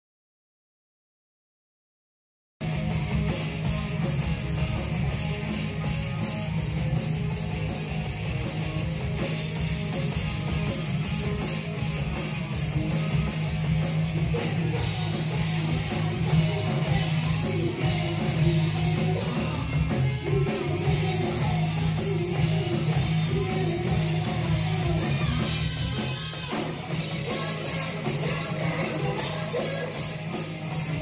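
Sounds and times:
heavy metal band playing: 0:02.6 - 0:31.0.

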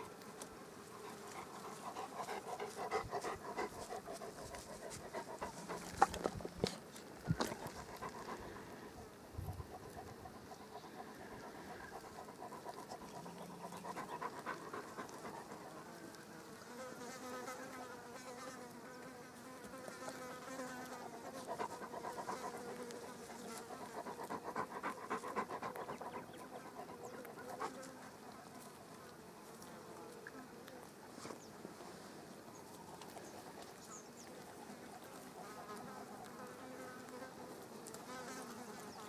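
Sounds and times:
insects buzzing: 0:00.0 - 0:28.6.

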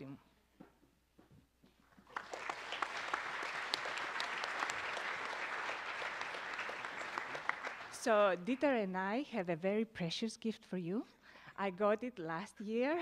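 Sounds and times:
audience clapping: 0:02.0 - 0:08.2.

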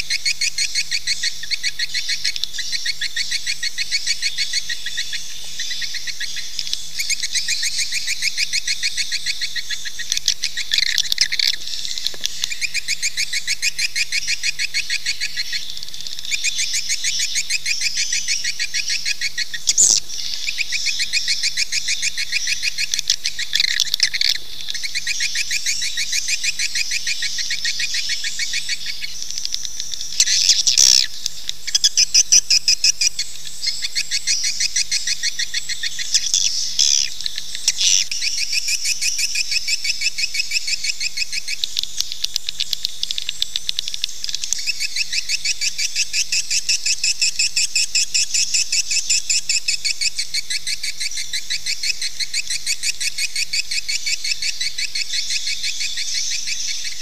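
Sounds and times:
swiftlet chirps twittering: 0:30.0 - 0:41.7.

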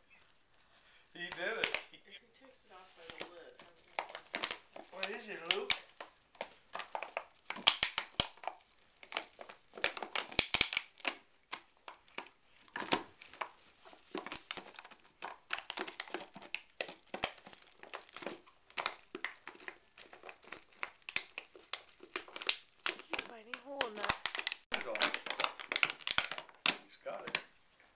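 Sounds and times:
dog chewing plastic can: 0:01.2 - 0:01.9, 0:02.9 - 0:27.5.

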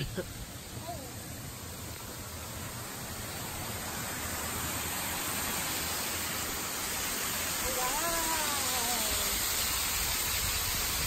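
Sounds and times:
waterfall rushing over rock: 0:00.0 - 0:11.0.

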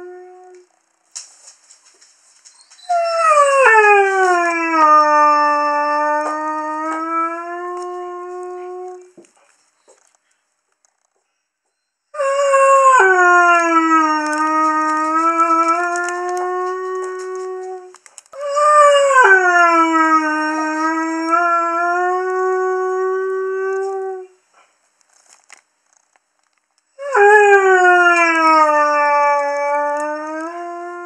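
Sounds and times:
dog howling: 0:02.8 - 0:09.1, 0:12.2 - 0:24.3, 0:27.0 - 0:31.0.

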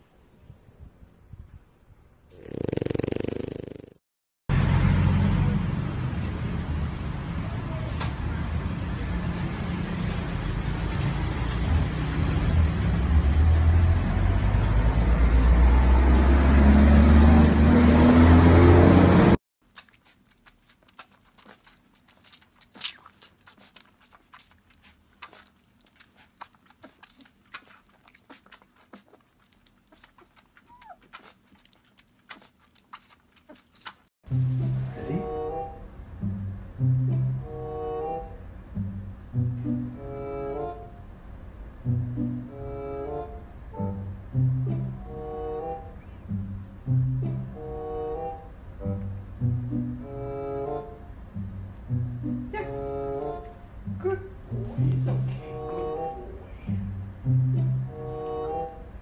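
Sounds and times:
puppy suckling from bottle: 0:19.6 - 0:34.1.

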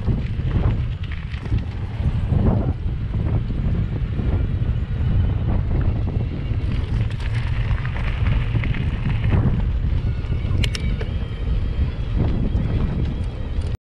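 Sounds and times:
bike tyres rolling on planks and gravel: 0:00.0 - 0:13.8
wind buffeting microphone: 0:00.0 - 0:13.8.

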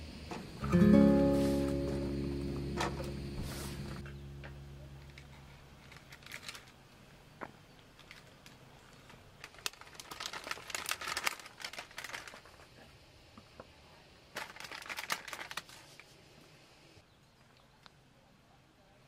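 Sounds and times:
plastic packaging crinkling: 0:05.0 - 0:06.8, 0:07.9 - 0:12.7, 0:14.3 - 0:16.1.

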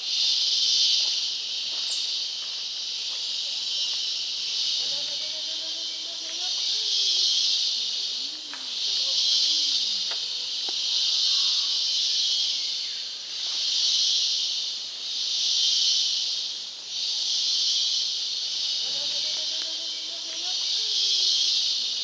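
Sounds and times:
insect chorus high buzzing: 0:00.0 - 0:22.0
faint low animal calls: 0:04.6 - 0:12.9.

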